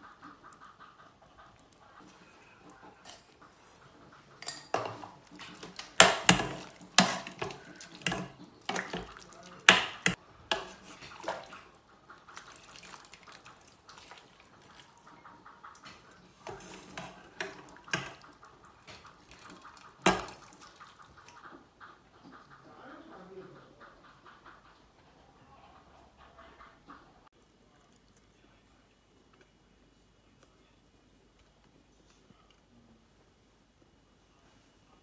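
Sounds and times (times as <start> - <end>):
spoon clinking and scraping pot: 4.4 - 11.2, 16.3 - 18.2
broth splashing and dripping: 5.2 - 21.5.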